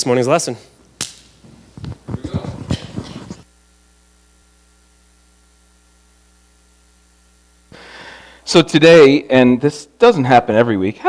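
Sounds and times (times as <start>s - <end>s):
electrical mains hum: 0.0s - 11.0s
microphone handling knocks and rustles: 1.4s - 3.5s.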